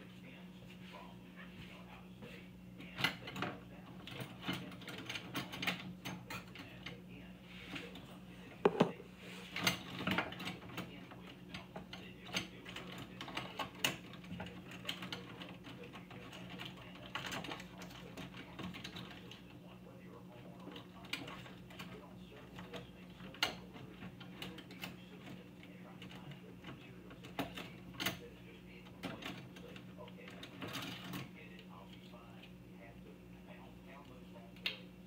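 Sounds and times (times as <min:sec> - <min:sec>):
steady low hum: 0:00.0 - 0:35.0
irregular clicks and knocks: 0:08.6 - 0:09.0.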